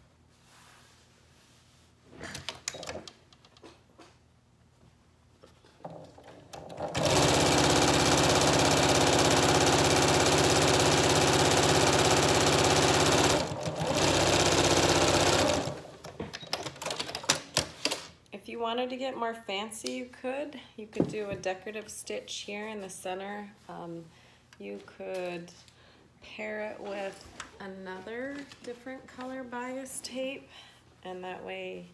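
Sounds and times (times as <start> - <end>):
sewing machine stitching: 6.5 - 15.9.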